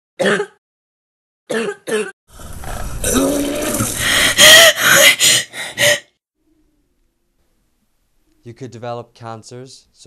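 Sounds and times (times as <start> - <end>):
person coughing: 0.2 - 0.6, 1.5 - 2.1.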